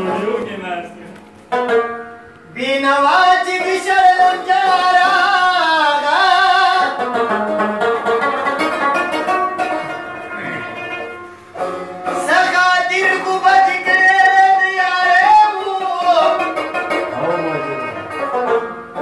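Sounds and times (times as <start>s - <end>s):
plucked string instrument: 0.0s - 19.0s
man singing: 2.5s - 7.1s, 12.0s - 18.2s.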